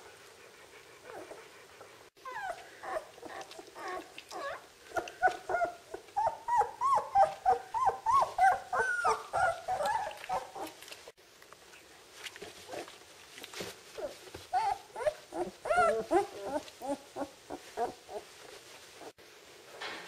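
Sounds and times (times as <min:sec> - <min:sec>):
puppies whimpering and squealing: 0:02.2 - 0:11.0, 0:13.9 - 0:18.3.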